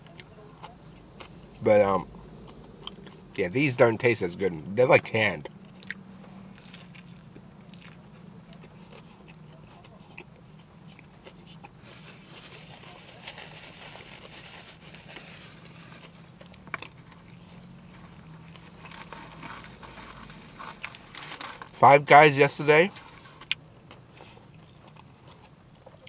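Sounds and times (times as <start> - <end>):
person chewing: 0.0 - 1.6, 2.3 - 3.4, 5.6 - 21.7, 23.1 - 26.0
low hum: 0.0 - 21.4.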